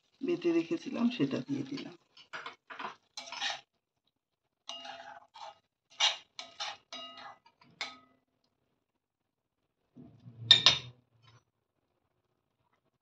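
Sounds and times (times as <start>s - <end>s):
metal spatula scraping a pan: 1.6s - 3.8s, 4.6s - 8.3s, 10.0s - 11.5s.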